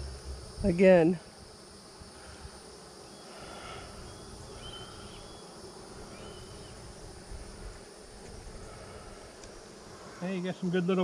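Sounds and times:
high insect chirring: 0:00.0 - 0:11.0
honeybees buzzing: 0:00.0 - 0:11.0
distant hawk crying: 0:03.4 - 0:05.4.

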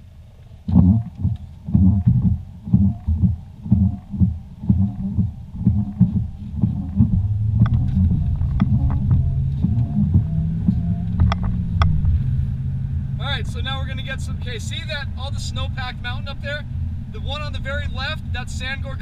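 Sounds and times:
engine hum: 0:00.0 - 0:19.0
rubber squeaking on glass: 0:00.7 - 0:11.5
sharp clicks: 0:00.7 - 0:12.0
windshield wipers beating: 0:00.7 - 0:12.2.

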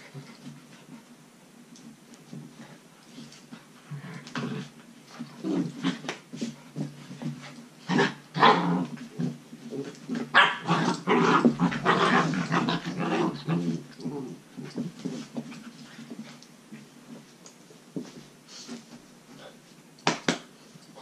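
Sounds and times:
puppies growling and yapping: 0:07.9 - 0:15.1.

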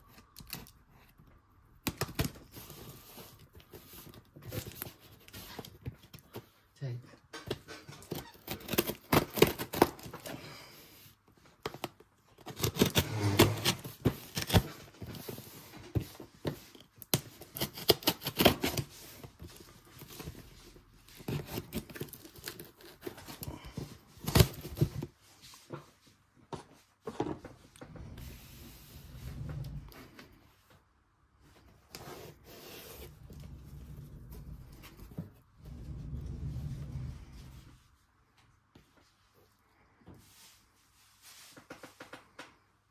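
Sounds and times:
cardboard box tearing open: 0:08.1 - 0:10.3, 0:12.4 - 0:14.9, 0:17.3 - 0:18.9, 0:21.2 - 0:23.5, 0:24.2 - 0:25.0.

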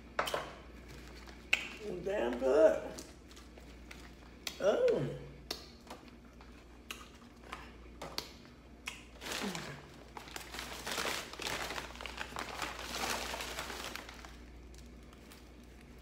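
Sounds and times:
paper bag rustling: 0:09.2 - 0:16.0.

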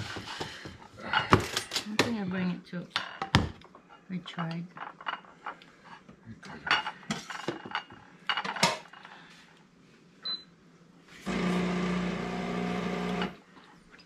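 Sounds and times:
machine hum with whirring: 0:11.2 - 0:13.4.

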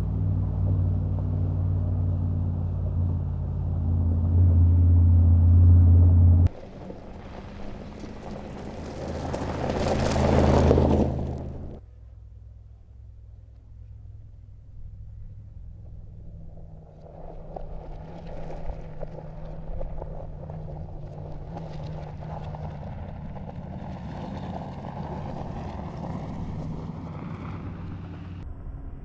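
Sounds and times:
engine pulling hard: 0:00.0 - 0:28.5
tyres crackling on gravel: 0:06.5 - 0:11.8, 0:16.3 - 0:28.4.

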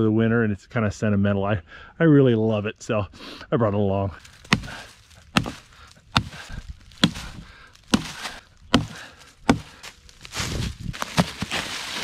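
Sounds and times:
hatchet chopping branch: 0:04.3 - 0:09.9, 0:11.0 - 0:11.6.

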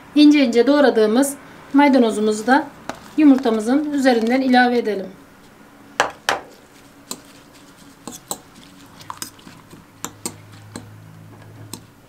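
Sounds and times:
spoon clinking in ceramic bowl: 0:08.0 - 0:10.9.

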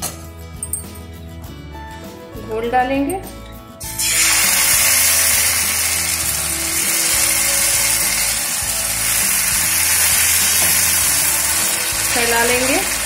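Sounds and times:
batter sizzling in hot oil: 0:03.8 - 0:13.0.

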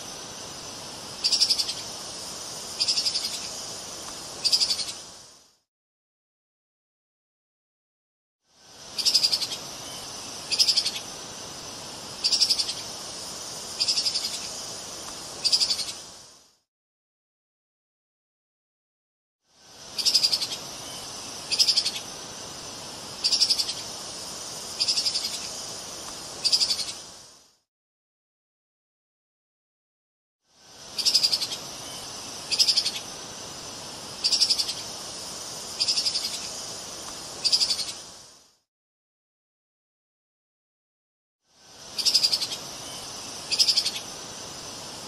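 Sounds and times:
background hiss: 0:00.0 - 0:05.7, 0:08.4 - 0:16.7, 0:19.5 - 0:27.7, 0:30.5 - 0:38.7, 0:41.5 - 0:45.0.

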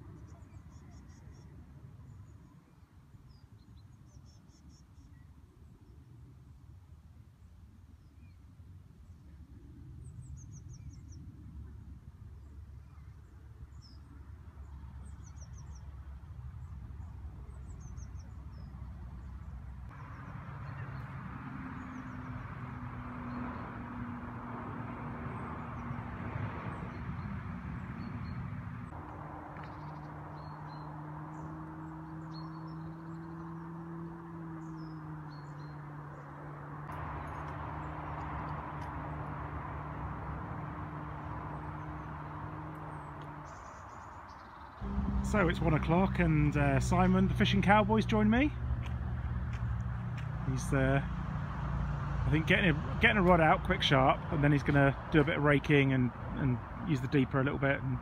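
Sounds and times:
outdoor background noise: 0:00.0 - 0:58.0
small birds chirping: 0:10.0 - 0:24.2, 0:25.3 - 0:48.9
low steady hum: 0:44.8 - 0:49.4.

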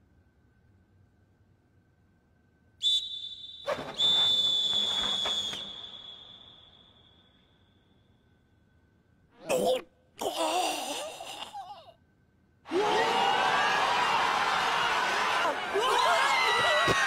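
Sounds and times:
referee's whistle blasts: 0:02.8 - 0:07.5.

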